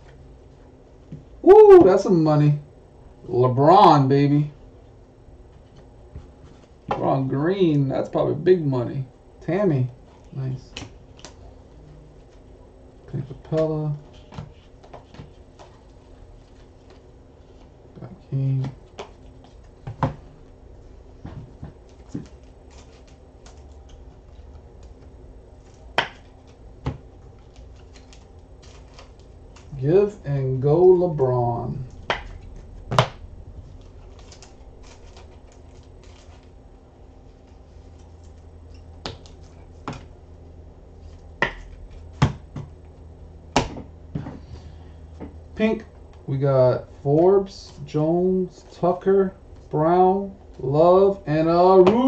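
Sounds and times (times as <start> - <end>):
room hum: 0.0 - 52.0
cards snapping and tapping: 25.7 - 29.8.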